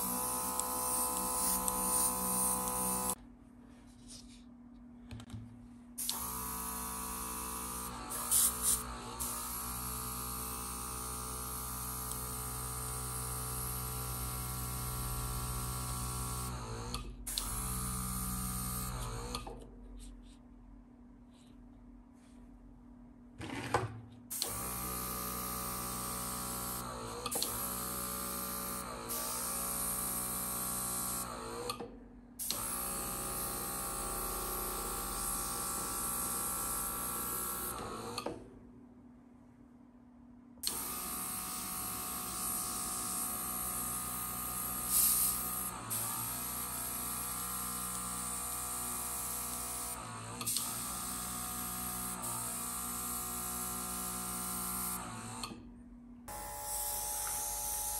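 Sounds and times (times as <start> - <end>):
airbrush compressor motor hum: 0.0 - 3.2, 6.0 - 19.5, 24.3 - 31.7, 32.4 - 38.2, 40.6 - 55.4, 56.3 - 57.9
air hissing from airbrush: 44.8 - 45.4.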